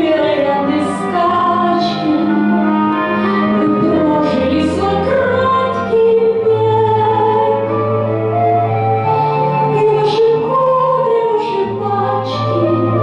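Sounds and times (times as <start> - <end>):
woman singing with vibrato: 0.0 - 2.7, 3.5 - 7.7, 9.7 - 13.0
backing track with bass: 0.0 - 13.0.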